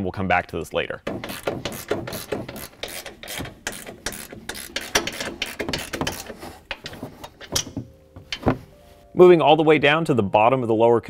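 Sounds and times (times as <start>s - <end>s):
ratchet clicking: 1.0s - 7.8s.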